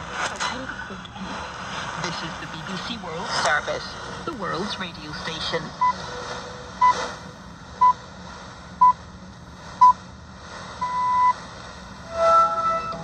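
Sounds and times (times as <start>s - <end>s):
shortwave radio hiss: 0.0s - 13.0s
radio time signal beeps: 5.4s - 7.2s, 7.8s - 8.0s, 10.8s - 11.4s.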